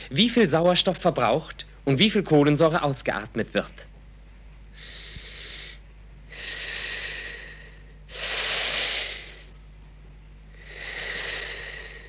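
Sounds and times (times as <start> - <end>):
person breathing through a hose: 4.8 - 9.5, 10.5 - 12.0.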